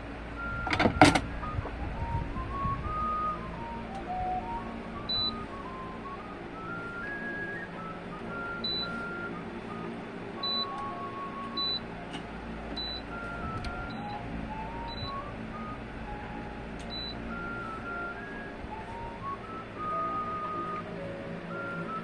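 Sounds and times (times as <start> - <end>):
slow background music: 0.0 - 22.0
short high-pitched beeps: 0.4 - 6.0, 8.3 - 9.3, 10.4 - 10.8, 11.5 - 11.8, 12.8 - 16.3, 16.9 - 18.2.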